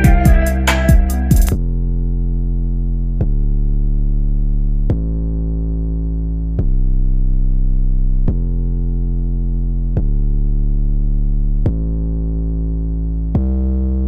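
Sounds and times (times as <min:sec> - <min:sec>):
hip-hop drums and hi-hats: 0:00.0 - 0:01.6
muffled synth bass and chord: 0:00.0 - 0:14.0.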